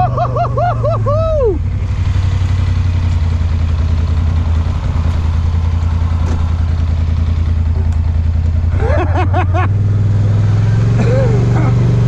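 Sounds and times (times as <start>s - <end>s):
atv engine idling: 0.0s - 8.9s.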